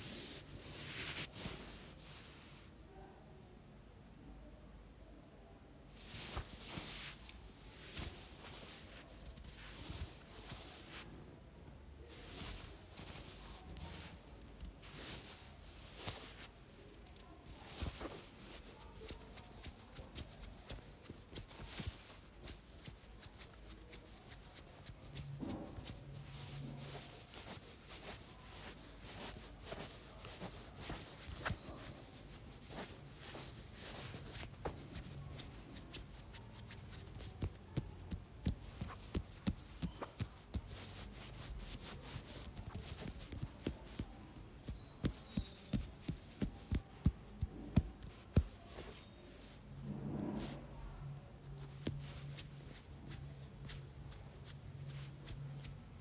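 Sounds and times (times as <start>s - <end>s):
fingertips rubbing skin and hair: 12.1s - 49.6s, 51.4s - 55.9s.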